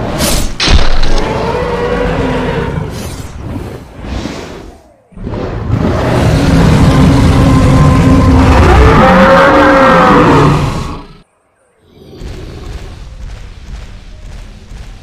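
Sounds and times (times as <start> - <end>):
dinosaur roar: 1.0 - 3.0, 5.2 - 11.2.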